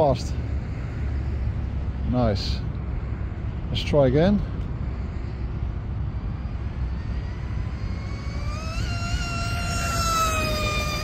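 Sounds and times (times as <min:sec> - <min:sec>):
high electric motor whine: 0:04.5 - 0:11.0
wind on microphone: 0:04.6 - 0:11.0.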